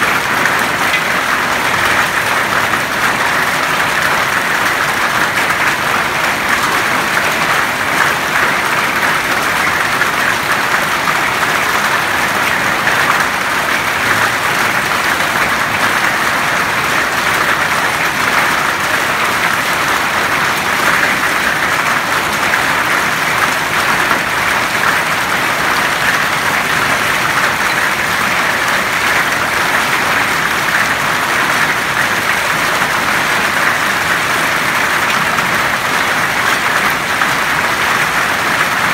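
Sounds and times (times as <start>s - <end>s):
hail and heavy rain falling: 0.0s - 38.9s.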